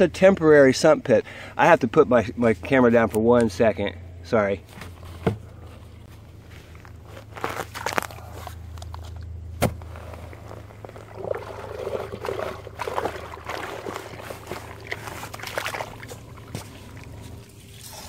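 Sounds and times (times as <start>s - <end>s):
shovel digging wet soil: 9.6s - 18.0s
water sloshing in trench: 9.6s - 18.0s.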